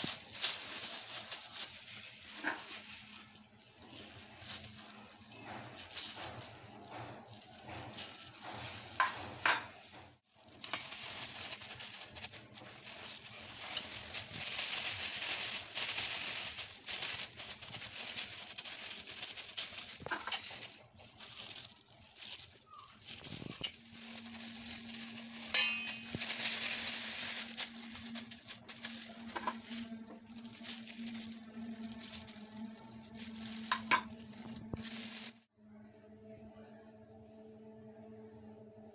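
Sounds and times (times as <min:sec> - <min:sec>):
plastic gloves crinkling: 0:00.0 - 0:35.5
plastic scoop scraping dough: 0:10.5 - 0:21.6.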